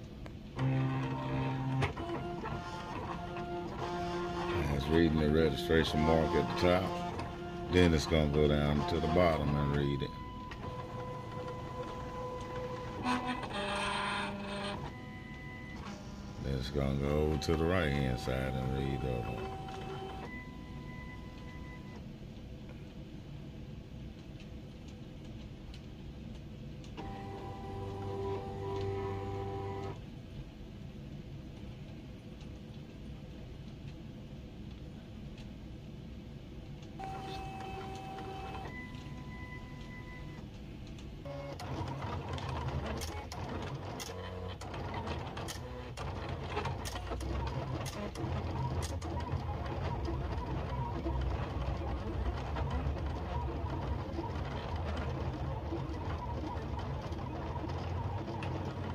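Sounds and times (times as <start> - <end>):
machine low hum: 0.0 - 58.9
cutting machine motors whining: 0.6 - 22.0, 27.0 - 30.0, 37.0 - 40.4
whirring with rapid ticks: 24.1 - 30.0, 36.7 - 58.9.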